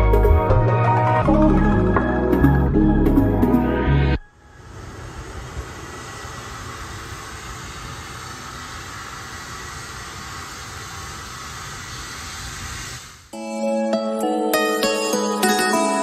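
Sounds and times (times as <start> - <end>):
faint high whine: 4.1 - 14.0
jet aircraft noise: 4.2 - 13.4.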